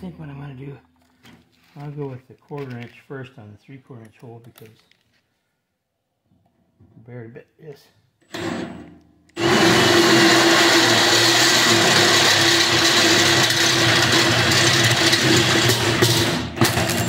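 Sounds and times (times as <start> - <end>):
cordless drill boring through steel: 9.4 - 16.0.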